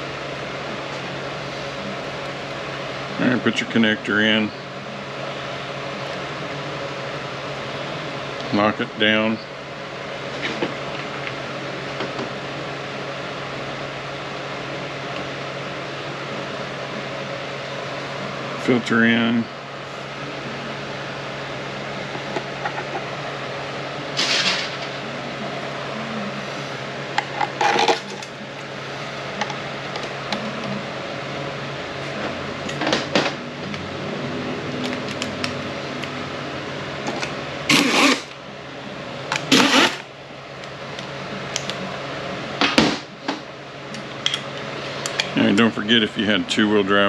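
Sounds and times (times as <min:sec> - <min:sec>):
low mechanical hum: 0:00.0 - 0:47.0.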